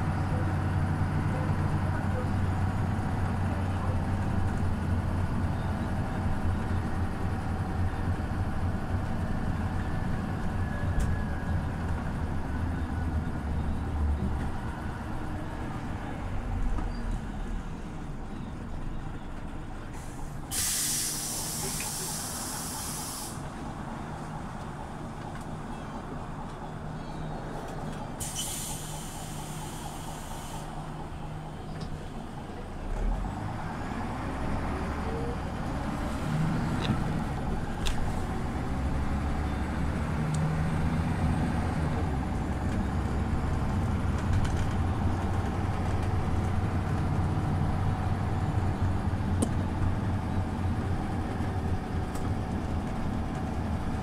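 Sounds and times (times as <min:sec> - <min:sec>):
bus engine humming: 0:00.0 - 0:54.0
compressed air hissing: 0:20.5 - 0:23.4, 0:28.2 - 0:30.6.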